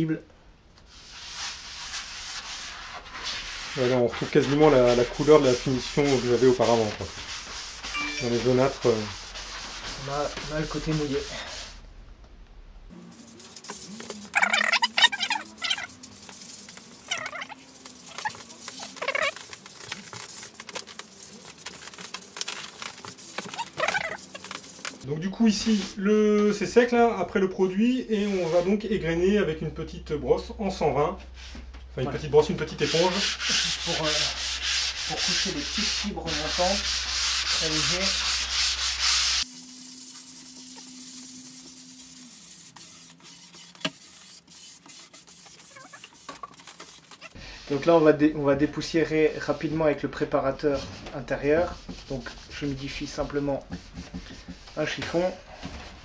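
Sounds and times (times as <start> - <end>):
cloth pad rubbing on wood: 0.9 - 11.7, 13.1 - 26.0, 32.7 - 48.0.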